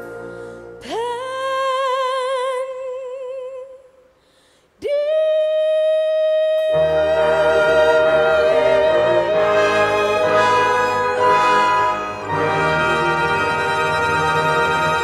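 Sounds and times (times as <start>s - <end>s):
ballad accompaniment: 0.0s - 1.1s, 6.6s - 15.0s.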